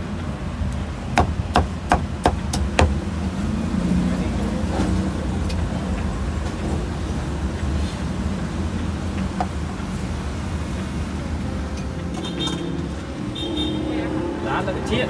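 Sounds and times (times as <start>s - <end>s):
cleaver chopping on wooden block: 1.2s - 3.0s.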